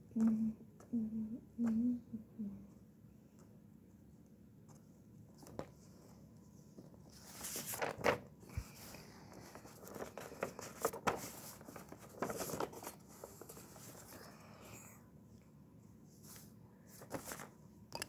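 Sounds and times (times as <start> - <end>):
paper rustling and scratching: 4.7 - 14.4, 16.2 - 17.6.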